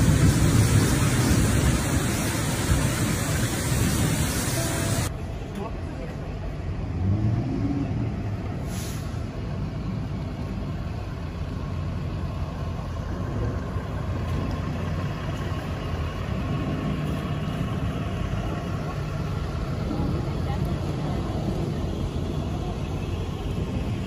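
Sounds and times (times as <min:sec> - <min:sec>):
vehicle engines idling: 0:00.0 - 0:24.0
short hiss: 0:08.6 - 0:09.3.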